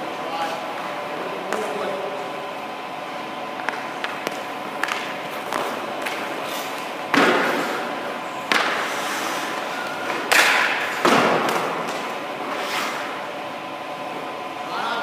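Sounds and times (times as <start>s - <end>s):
skates scraping ice: 4.8s - 13.2s.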